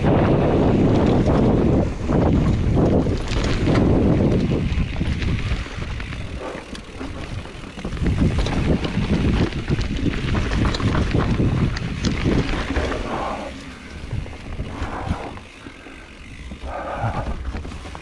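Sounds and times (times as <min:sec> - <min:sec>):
bike clicks and rattles: 0:00.0 - 0:18.0
bike tyres rumbling over dirt: 0:00.0 - 0:18.0
wind buffeting microphone: 0:00.0 - 0:18.0.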